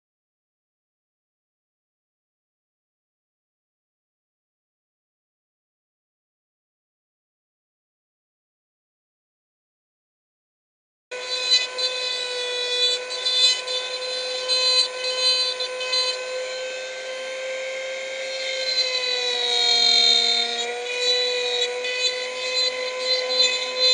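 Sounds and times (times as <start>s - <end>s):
rotary tool grinding plastic: 11.2s - 23.9s.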